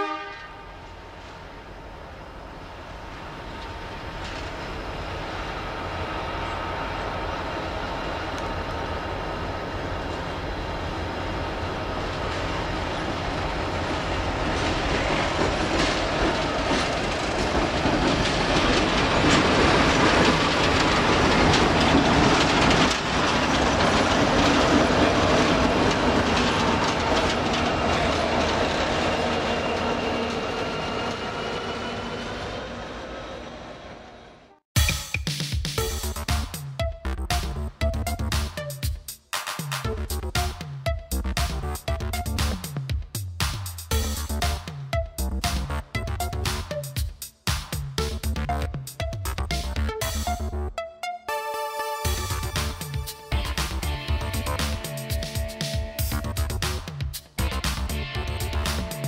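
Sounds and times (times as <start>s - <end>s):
diesel locomotive engines: 0.0s - 34.6s, 43.8s - 59.0s
train wheels clicking on rail joints: 3.1s - 31.9s, 52.2s - 59.0s.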